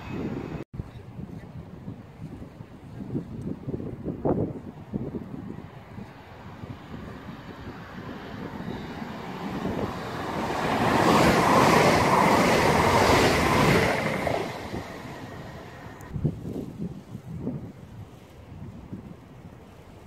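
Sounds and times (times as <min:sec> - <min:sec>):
train passing at speed: 0:05.6 - 0:16.1
wind thumps on microphone: 0:07.0 - 0:19.3.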